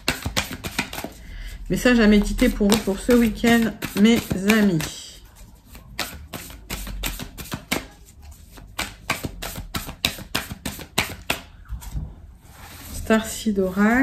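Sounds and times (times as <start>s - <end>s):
cards shuffling: 0.0s - 1.2s, 2.4s - 5.0s, 5.6s - 11.5s.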